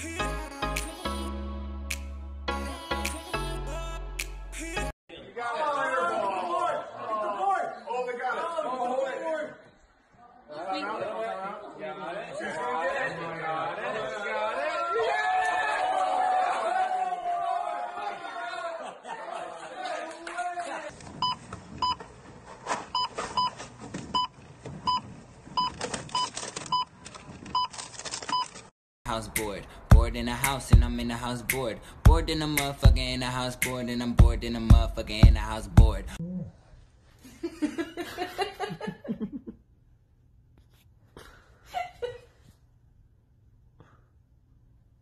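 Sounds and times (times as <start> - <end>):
checkout scanner beeps: 21.2 - 22.0, 23.0 - 23.6, 24.9 - 26.9.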